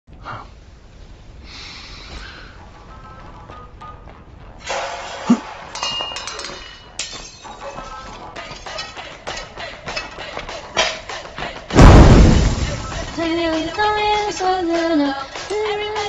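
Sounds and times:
music: 2.1 - 16.0
dishes and cookware clattering: 5.7 - 11.1.

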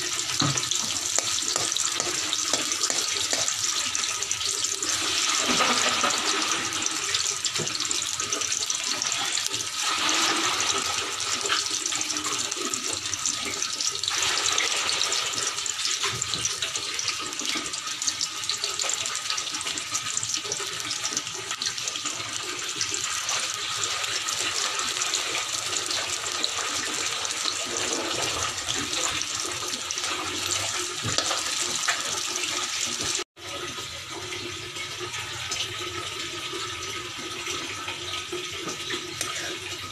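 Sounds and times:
spatula scraping: 0.0 - 3.8
oil sizzling in a wok: 0.0 - 39.9.

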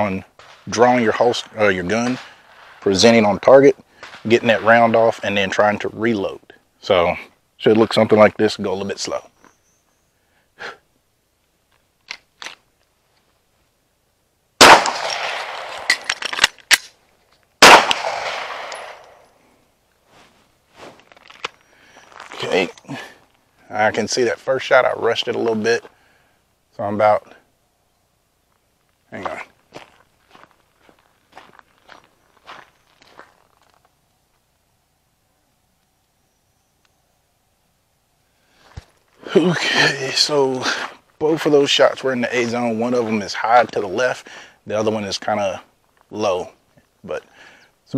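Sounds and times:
handgun shots with echo: 14.6 - 16.9, 17.6 - 19.2
magazine change clicks: 17.6 - 19.2
footsteps on gravel: 20.0 - 23.4, 28.5 - 34.4.

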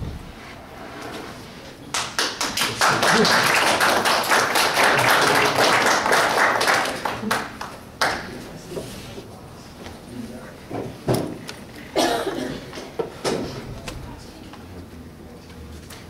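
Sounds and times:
audience applauding: 1.9 - 8.4.

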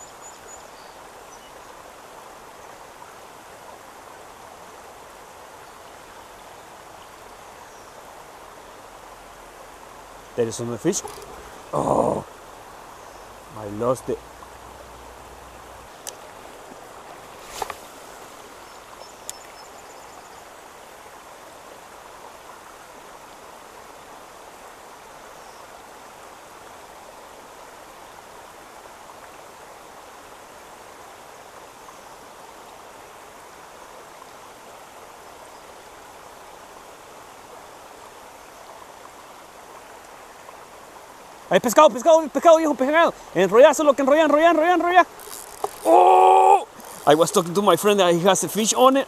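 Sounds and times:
rain falling on a pond: 0.0 - 49.0
thin click: 11.0 - 11.4.

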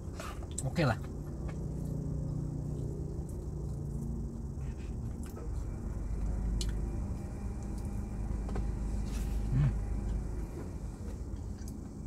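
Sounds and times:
steady low hum: 0.0 - 12.0
person chewing food: 1.2 - 6.8.

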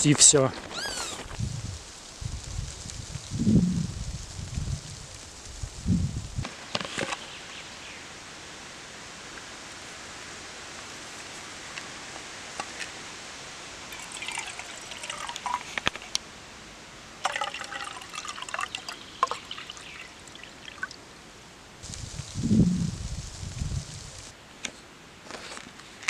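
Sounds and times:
water pouring into steel cup: 13.8 - 16.1, 17.2 - 21.0.

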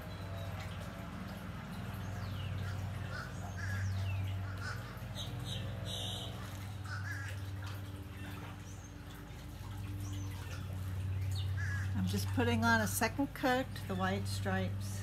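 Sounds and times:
low machine hum: 0.0 - 15.0
crows cawing: 2.6 - 7.6, 11.6 - 12.0.

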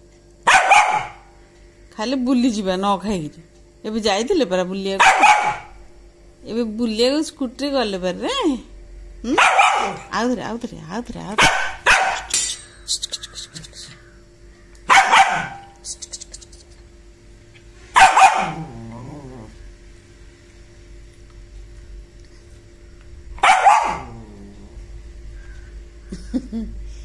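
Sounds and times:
small dog barking: 0.4 - 1.3, 5.0 - 5.8, 9.3 - 10.2, 11.4 - 12.3, 14.8 - 15.8, 17.9 - 18.8, 23.4 - 24.2.

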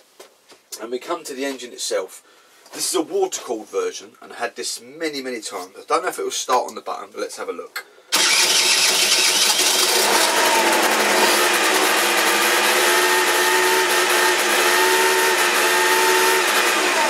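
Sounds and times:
scooter engine running: 8.2 - 17.0.

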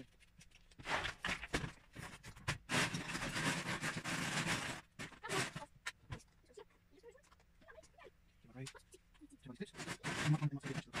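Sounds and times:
plastic bricks clattering: 0.7 - 5.7.

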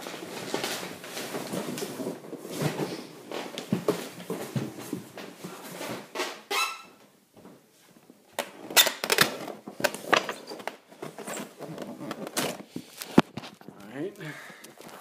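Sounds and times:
short high squeak: 6.5 - 7.0.

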